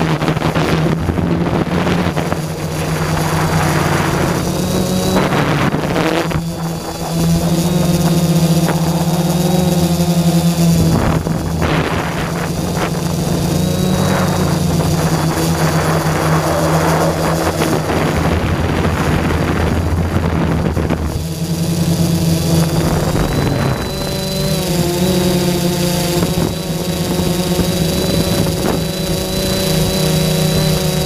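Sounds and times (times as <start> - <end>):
drone motors buzzing: 0.0 - 31.0
rushing noise: 2.4 - 20.5.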